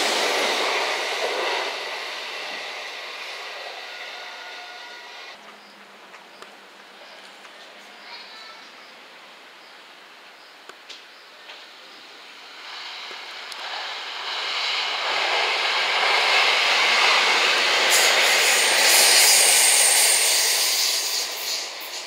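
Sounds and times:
electric train passing: 0.0 - 5.7, 11.6 - 22.0.

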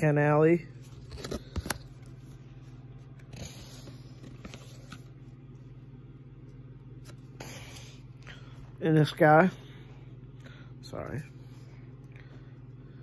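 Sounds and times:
steady low hum: 0.0 - 13.0
cards sliding and rustling: 0.8 - 5.4.

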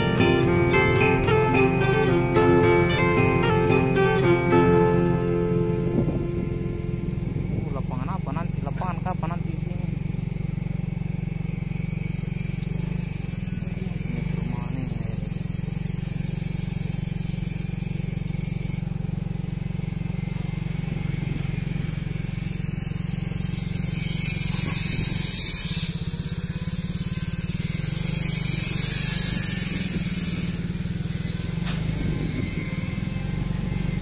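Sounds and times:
motorcycle engine running: 0.0 - 34.0
wind rushing over microphone: 5.9 - 7.9, 31.8 - 33.0.

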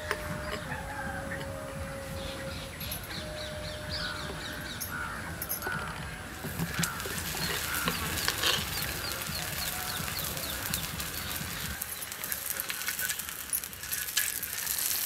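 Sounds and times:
crows cawing: 0.0 - 11.8
ghee sizzling on a hot pan: 6.3 - 15.0.

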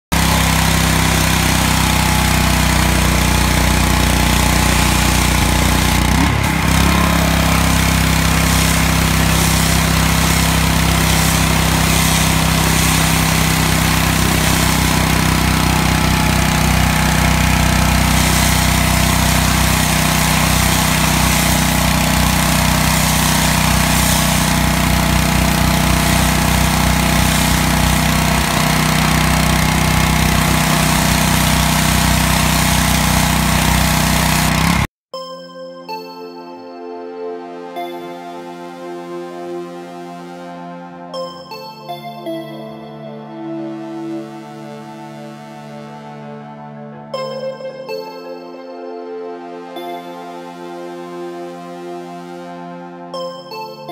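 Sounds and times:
high-pressure water jet hissing: 0.1 - 34.9
small engine humming: 0.1 - 34.9.

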